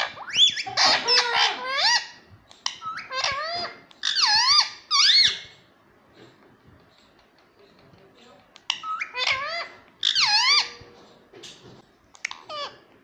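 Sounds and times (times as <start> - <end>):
parakeet chirping: 0.0 - 5.7, 8.6 - 10.8, 12.2 - 12.8.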